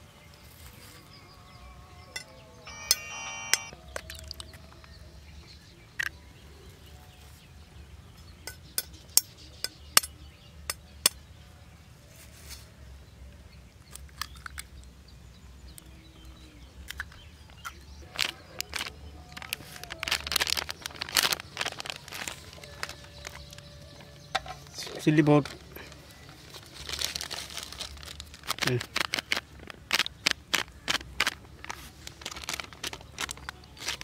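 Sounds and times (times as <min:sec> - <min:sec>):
rustling: 0:18.0 - 0:24.0, 0:25.4 - 0:34.0.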